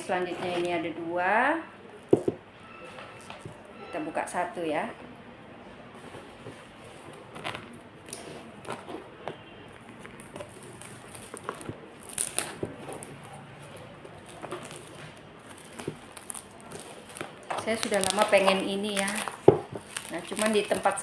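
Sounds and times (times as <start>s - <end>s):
scissors cutting tape: 10.3s - 21.0s.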